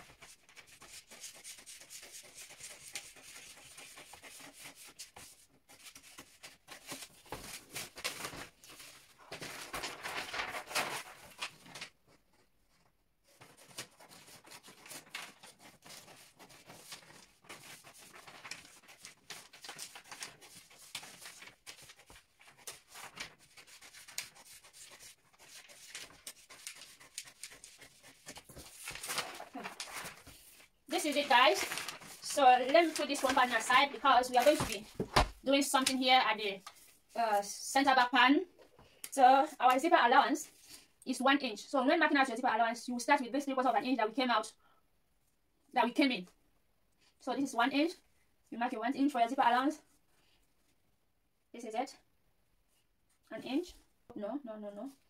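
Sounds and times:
paper rustling: 0.0s - 37.5s.

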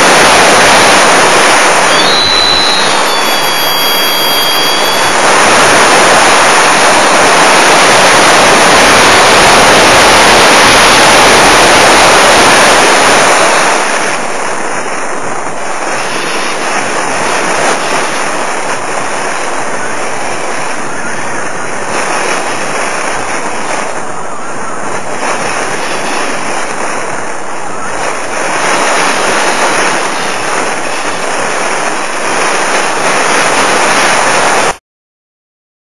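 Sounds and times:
wind rushing over microphone: 0.0s - 34.8s.

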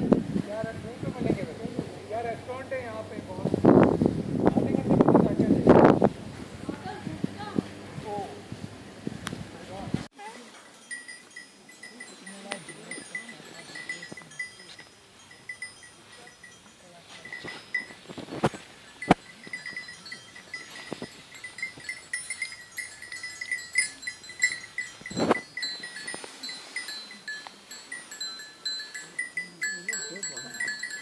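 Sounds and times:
livestock bells tinkling: 10.2s - 31.0s.

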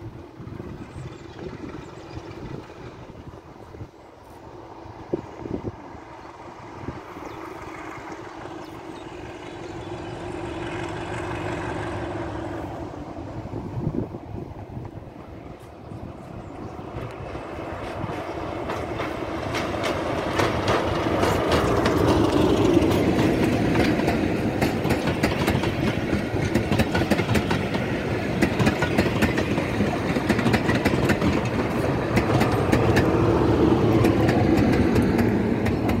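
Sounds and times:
diesel locomotive engine passing: 0.0s - 36.0s
train wheels clattering over rail joints: 16.9s - 36.0s.

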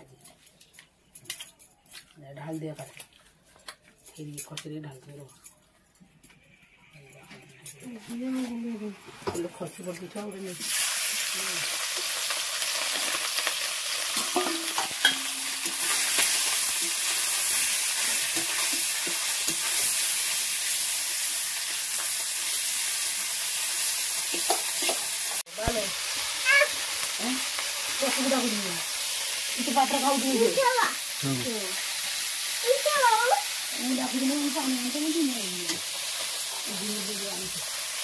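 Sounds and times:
fish sizzling in hot oil: 8.1s - 38.0s.

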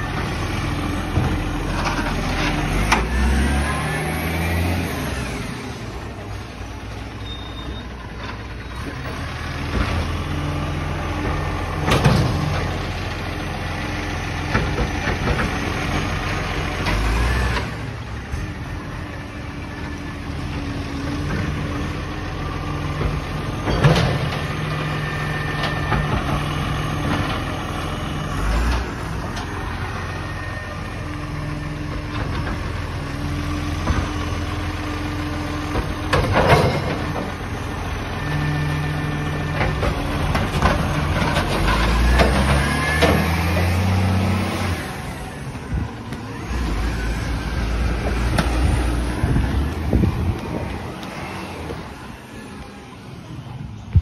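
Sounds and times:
diesel truck engine idling and revving: 0.0s - 54.0s
hydraulic arm lifting bins: 0.0s - 54.0s.

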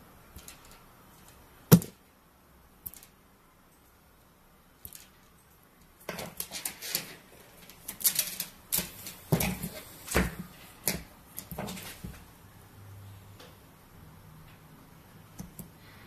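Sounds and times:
clicks taps and rustles: 5.9s - 12.3s.

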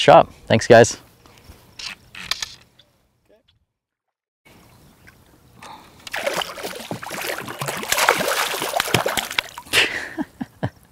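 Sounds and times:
fish splashing in water: 6.0s - 9.8s.

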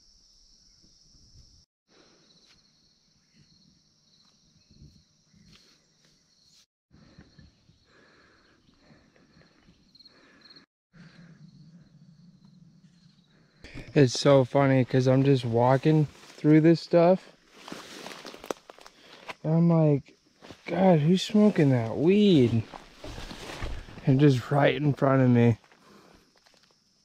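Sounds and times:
insect chorus trilling: 7.2s - 27.0s
footsteps: 13.8s - 16.7s, 17.5s - 19.4s, 20.4s - 25.0s
brushing through vegetation: 14.9s - 16.7s, 17.4s - 19.4s, 20.4s - 24.6s.

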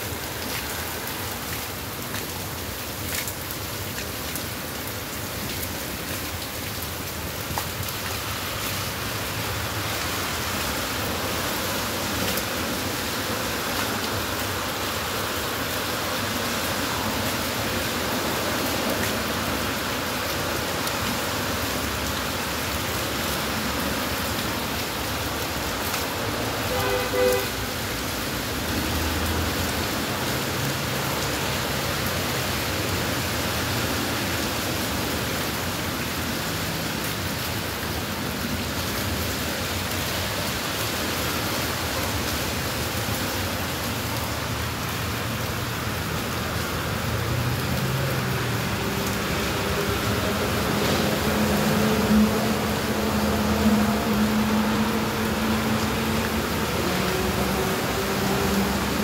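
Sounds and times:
heavy rain on pavement: 0.0s - 59.0s
low traffic rumble: 0.0s - 59.0s
short horn toot: 26.7s - 27.6s.

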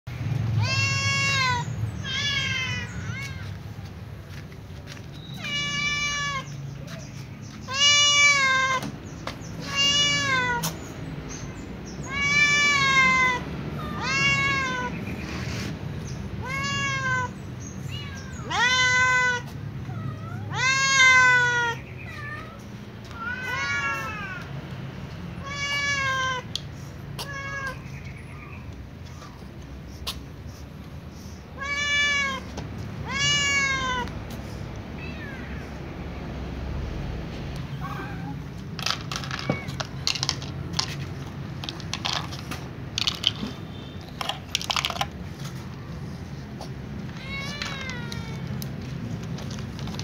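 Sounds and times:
cat meowing: 0.6s - 3.6s, 5.3s - 6.6s, 7.6s - 8.9s, 9.5s - 10.8s, 12.0s - 15.0s, 16.4s - 24.5s, 25.4s - 26.5s, 27.2s - 27.9s, 31.6s - 34.2s, 35.0s - 35.8s, 47.0s - 48.7s.

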